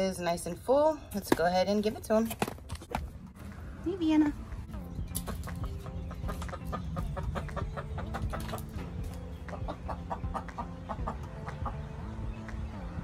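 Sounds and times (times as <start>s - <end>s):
hens clucking: 5.0s - 12.6s.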